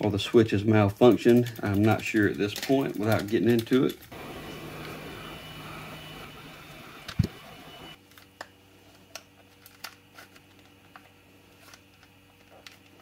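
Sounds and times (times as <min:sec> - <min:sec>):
heat gun blowing air: 0:04.2 - 0:08.0.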